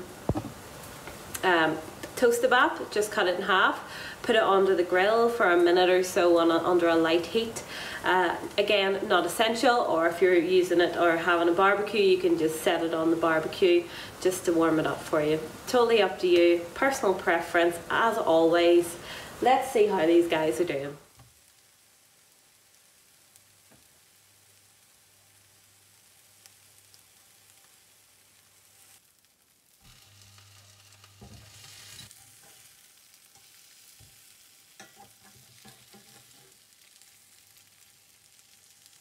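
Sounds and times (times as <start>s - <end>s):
burger patties sizzling in a pan: 0.0s - 39.0s
metal spatula scraping a pan: 30.0s - 37.1s.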